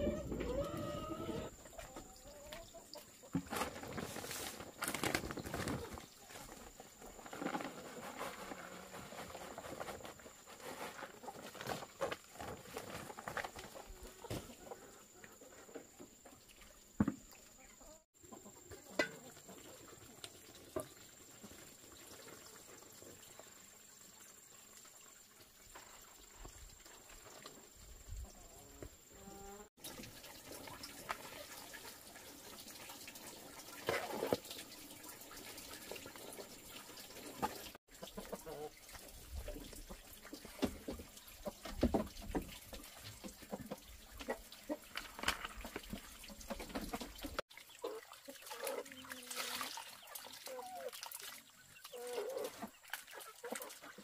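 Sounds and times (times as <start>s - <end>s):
chickens clucking: 0.0s - 3.6s, 17.6s - 20.2s, 37.3s - 41.8s, 43.2s - 50.9s, 51.5s - 54.0s
rustling: 3.4s - 14.5s.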